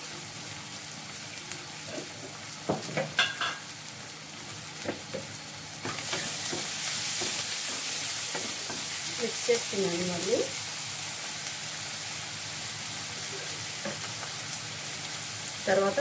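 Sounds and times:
onions sizzling in hot oil: 0:00.0 - 0:16.0
spoon clinking and scraping pan: 0:03.1 - 0:03.6.

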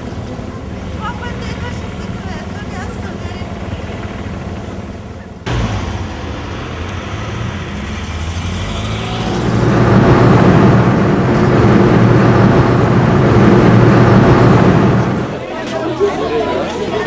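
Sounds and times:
road rush: 0:00.0 - 0:17.0
car engine hum inside cabin: 0:03.3 - 0:15.4.

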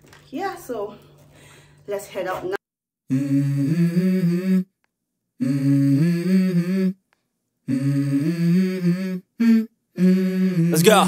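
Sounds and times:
person humming: 0:03.1 - 0:04.8, 0:05.4 - 0:07.0, 0:07.6 - 0:11.0.

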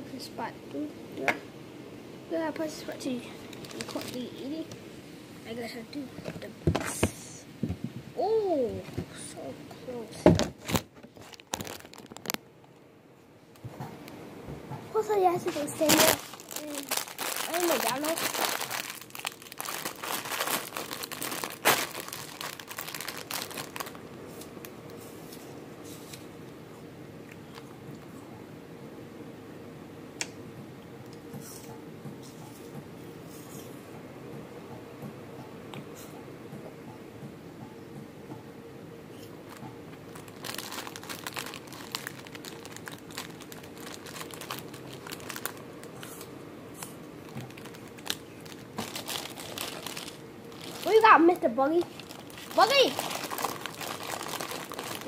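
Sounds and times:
plastic wrappers crinkling: 0:03.2 - 0:04.6, 0:10.4 - 0:12.8, 0:15.4 - 0:24.5, 0:39.4 - 0:55.0.

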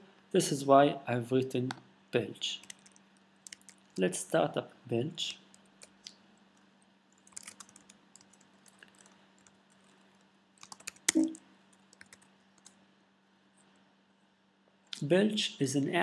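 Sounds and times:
faint steady hum: 0:00.0 - 0:16.0
computer keyboard keystrokes: 0:02.6 - 0:03.9, 0:07.2 - 0:10.0, 0:10.6 - 0:12.8.

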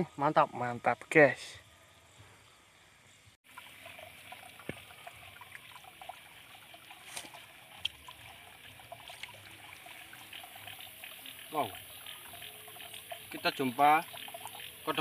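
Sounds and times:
faint water trickling: 0:03.4 - 0:15.0.

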